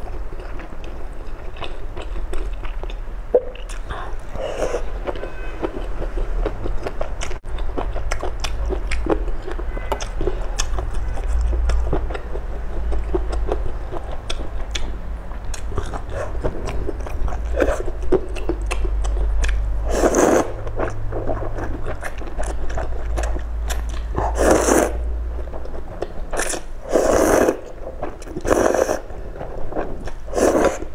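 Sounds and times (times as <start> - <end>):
chewing and wet mouth clicks: 0.0 - 4.4, 5.0 - 29.0
noodle slurps: 19.9 - 20.6, 24.2 - 25.0, 26.4 - 27.7, 28.4 - 29.1, 30.3 - 30.9.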